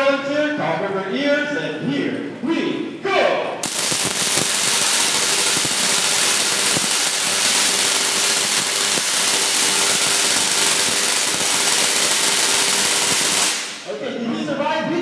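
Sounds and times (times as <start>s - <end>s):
tesla coil buzzing crackle: 3.6s - 13.9s.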